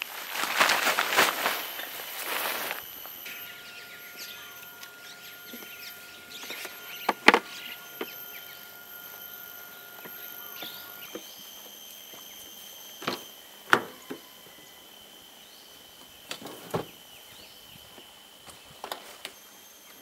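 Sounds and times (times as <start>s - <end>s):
hum of thin high tones: 0.0s - 20.0s
faint bird chirps: 2.8s - 16.3s.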